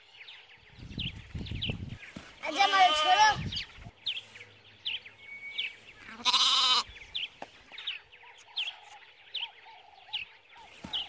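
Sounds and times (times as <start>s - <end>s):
bird chirping: 0.0s - 11.0s
sheep bleating: 2.5s - 3.4s, 6.1s - 6.9s.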